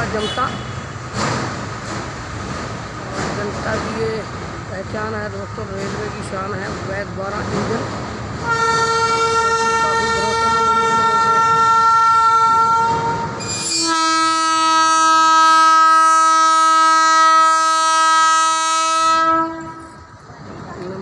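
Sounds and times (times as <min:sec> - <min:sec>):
locomotive air horn blasts: 0:08.4 - 0:20.0.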